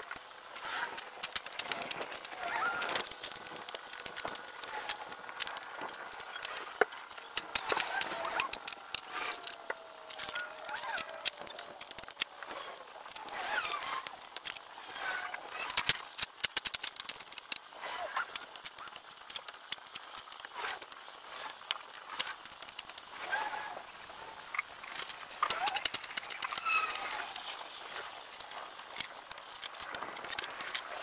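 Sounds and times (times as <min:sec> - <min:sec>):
logs clattering: 0:00.0 - 0:31.0
squeaky chirp-like glides: 0:00.6 - 0:15.8, 0:17.3 - 0:31.0.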